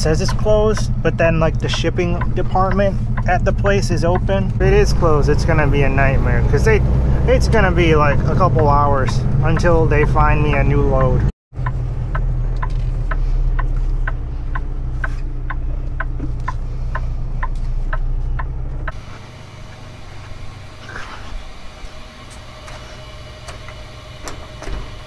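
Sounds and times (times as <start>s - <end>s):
turn signal clicking: 0.0s - 5.5s, 7.7s - 20.4s
truck engine and road rumble: 0.0s - 25.0s.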